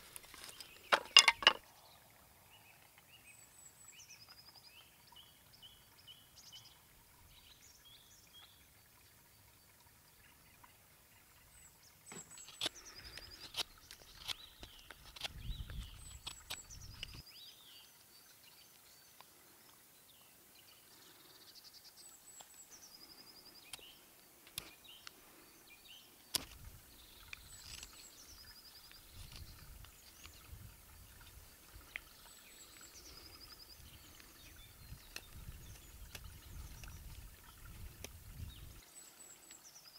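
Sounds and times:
knife scraping wood: 0:13.4 - 0:17.2.

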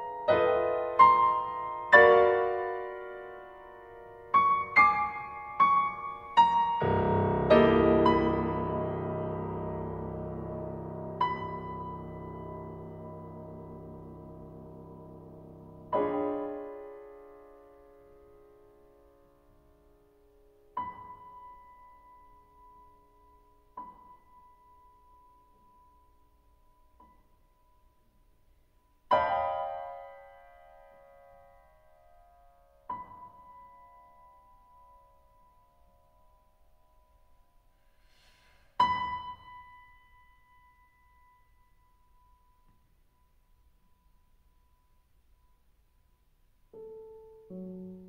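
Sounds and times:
soft piano chord: 0:00.0 - 0:19.6
high piano note: 0:06.8 - 0:16.7.

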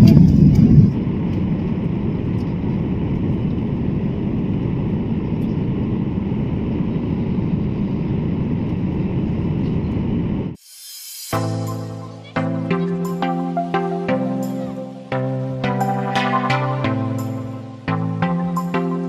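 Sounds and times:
jet cabin engine noise: 0:00.0 - 0:10.6.

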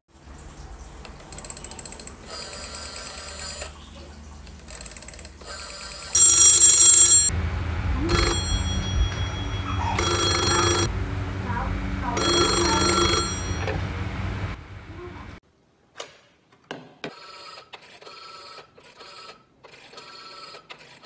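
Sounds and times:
telephone bell ringing: 0:05.8 - 0:07.4, 0:08.0 - 0:10.9, 0:12.2 - 0:13.9.

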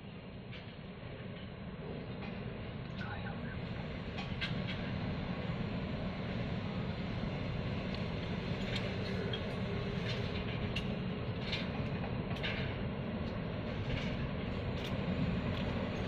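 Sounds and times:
passenger train rumbling: 0:00.0 - 0:16.0.

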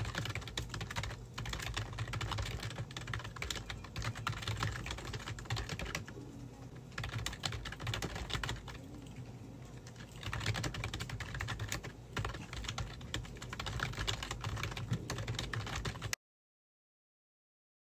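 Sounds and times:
computer keyboard typing: 0:00.0 - 0:06.2, 0:06.8 - 0:16.2.

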